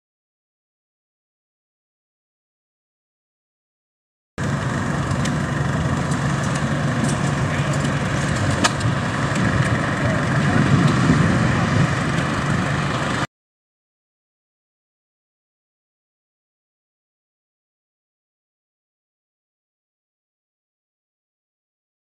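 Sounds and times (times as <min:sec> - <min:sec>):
tractor engine running: 0:04.4 - 0:13.3.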